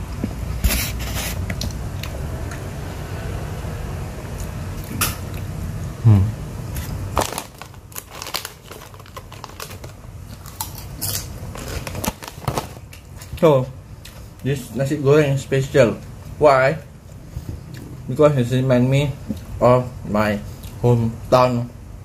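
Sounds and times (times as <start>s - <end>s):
person humming mm: 6.0s - 6.4s.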